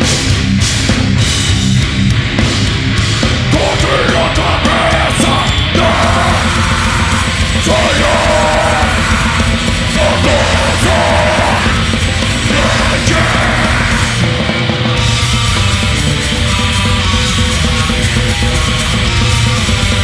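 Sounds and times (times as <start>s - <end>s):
bass guitar: 0.0s - 20.0s
distorted electric guitars: 0.0s - 20.0s
pounding drums: 0.0s - 20.0s
harsh yelled vocals: 3.4s - 14.6s.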